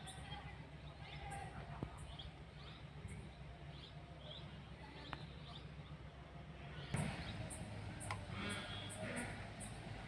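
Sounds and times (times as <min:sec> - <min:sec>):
diesel engine rumbling: 0:00.0 - 0:10.0
small birds chirping: 0:00.0 - 0:10.0.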